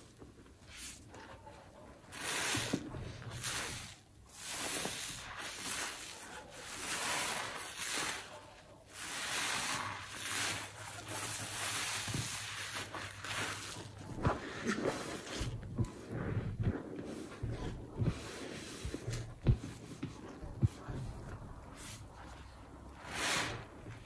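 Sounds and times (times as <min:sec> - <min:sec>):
wet sponge squelching: 0:00.0 - 0:24.0.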